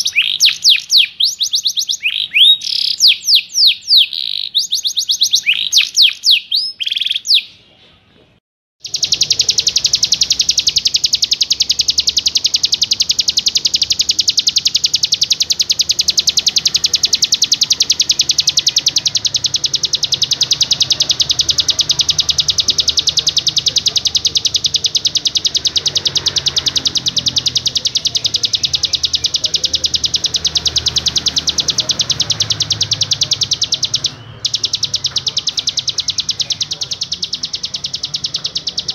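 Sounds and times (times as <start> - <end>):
rapid songbird trill: 0.0 - 7.6, 8.8 - 38.9
songbird whistles: 0.0 - 7.6, 8.8 - 38.9.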